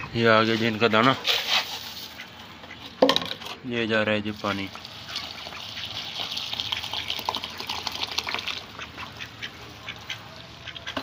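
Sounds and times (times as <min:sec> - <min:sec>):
ducks dabbling and splashing: 0:00.0 - 0:03.1, 0:04.1 - 0:11.0
wet pecking and slurping: 0:04.7 - 0:11.0.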